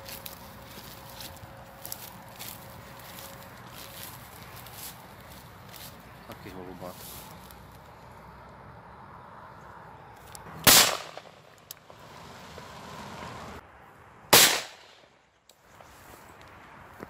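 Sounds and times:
shotgun shots: 10.6s - 11.4s, 14.3s - 15.1s.

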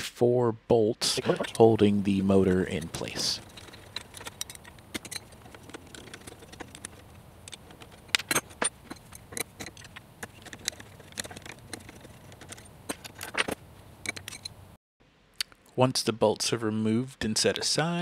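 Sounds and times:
hex wrench clinking against bolts: 2.5s - 14.6s.

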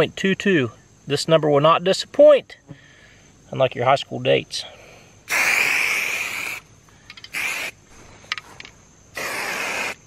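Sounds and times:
aerosol paint spraying: 5.3s - 6.7s, 7.3s - 7.8s, 9.1s - 10.0s.

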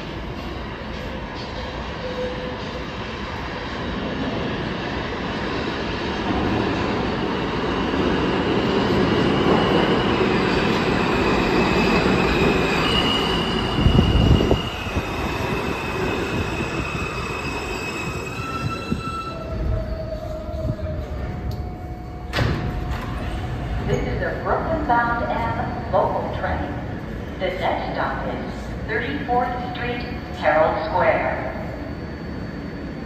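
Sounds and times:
train wheels rumbling on rails: 0.0s - 26.4s.

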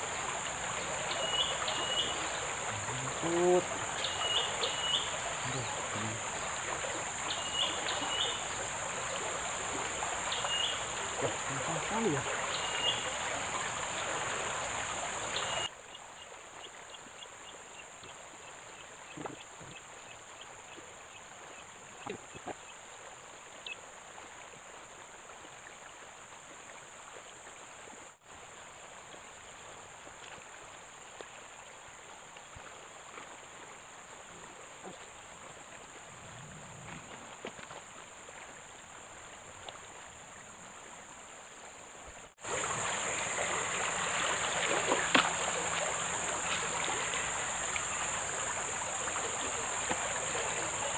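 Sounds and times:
high-pitched insect chorus: 0.0s - 15.7s, 37.1s - 50.9s
flowing water hiss: 0.0s - 50.9s.

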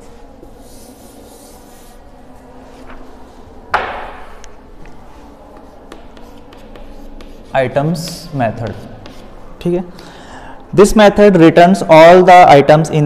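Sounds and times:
chalk tapping and scratching: 0.0s - 2.0s, 4.8s - 9.4s
duster rubbing on blackboard: 0.4s - 2.1s, 5.1s - 9.4s
sharp knock: 3.7s - 4.4s.

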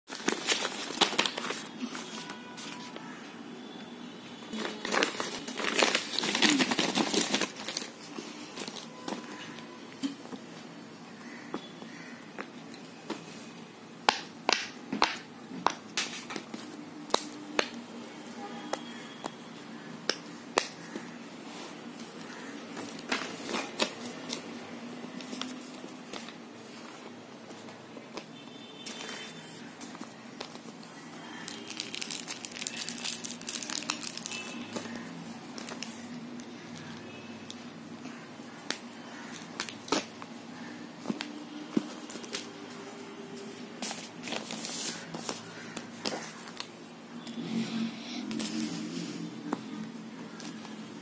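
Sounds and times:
paper rustling: 0.1s - 3.2s, 4.6s - 9.6s, 39.1s - 46.8s
paper rustling and crinkling: 0.1s - 3.2s, 4.5s - 9.7s, 20.8s - 24.5s, 25.1s - 36.2s, 38.1s - 46.8s, 48.3s - 51.0s.

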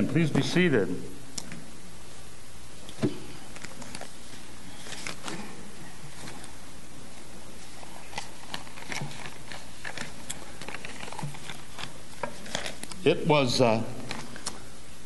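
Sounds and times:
room hiss: 0.0s - 15.0s
rustling: 1.4s - 13.1s.

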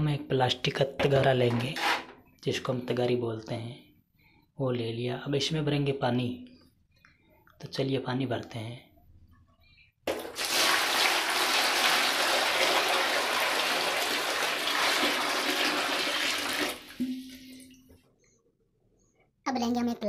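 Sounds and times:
water pouring into plastic tub: 10.1s - 17.8s.

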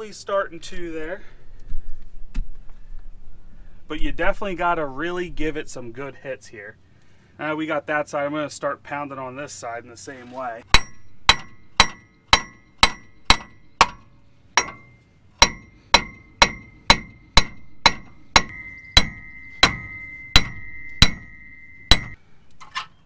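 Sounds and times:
metal ringing: 10.7s - 22.2s
sledge hammer striking steel: 10.7s - 22.2s.

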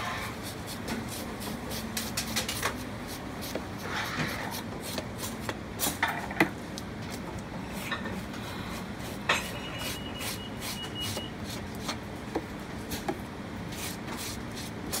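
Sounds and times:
faint high ring: 9.3s - 11.3s.

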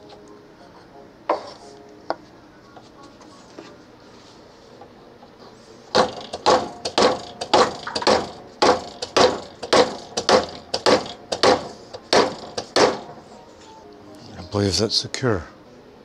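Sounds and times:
sharp knocks on metal: 5.9s - 13.2s.

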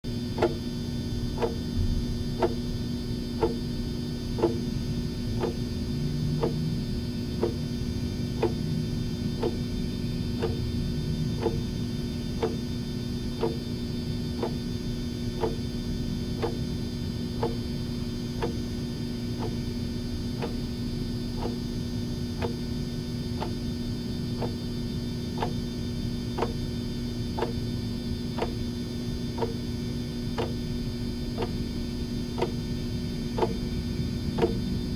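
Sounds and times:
clock ticking: 28.4s - 28.6s, 30.4s - 30.6s, 32.4s - 32.6s, 33.4s - 33.6s, 34.4s - 34.6s.

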